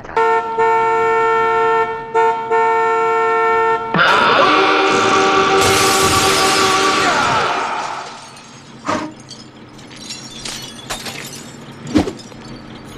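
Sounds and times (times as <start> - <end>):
cartoon horn blast: 0.0 - 8.4
windshield glass shattering: 4.9 - 12.9
glass pieces tinkling: 8.0 - 12.9.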